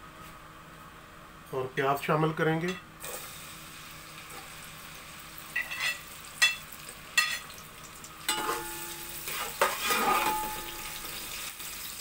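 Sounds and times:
onions sizzling in oil: 0:03.0 - 0:12.0.

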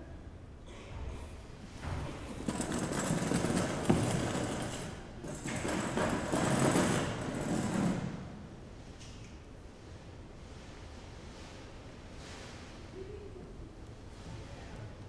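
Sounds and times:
metal chair scraping across floor: 0:01.7 - 0:08.4.

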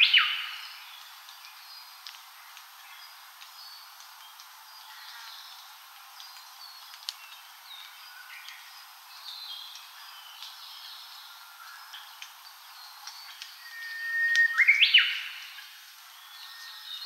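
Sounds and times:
forest ambience hiss: 0:00.0 - 0:17.0
birds chirping and whistling: 0:12.8 - 0:15.6.

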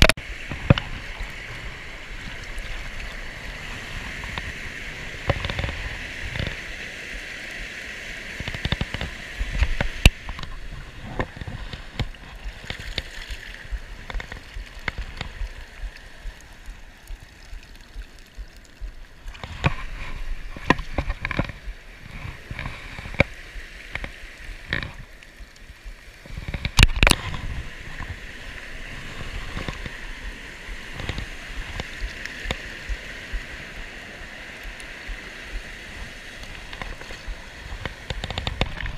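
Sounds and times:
stream pouring over spillway: 0:00.0 - 0:38.9.

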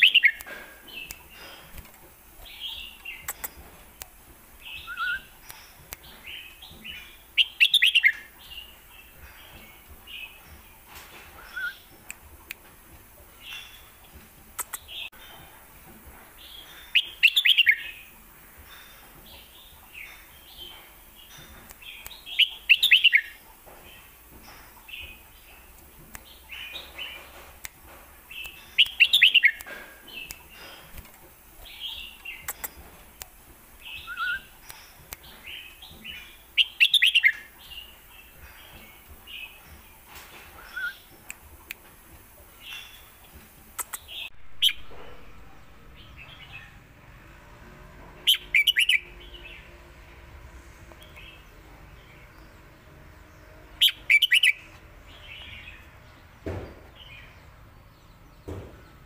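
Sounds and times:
soft bird chirps: 0:00.0 - 0:03.9, 0:04.6 - 0:12.7, 0:13.3 - 0:27.5, 0:28.2 - 0:47.0, 0:48.2 - 0:49.8, 0:50.8 - 0:59.0.

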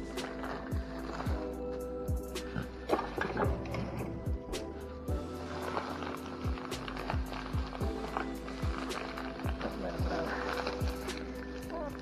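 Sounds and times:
ticking hi-hats: 0:00.0 - 0:03.6.

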